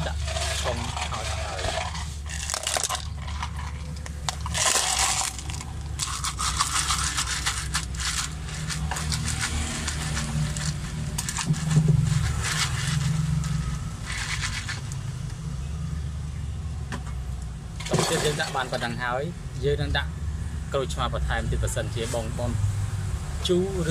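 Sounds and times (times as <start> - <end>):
ice rattling in plastic cup: 0.0 - 15.0, 17.8 - 18.8
low droning hum: 0.0 - 21.1.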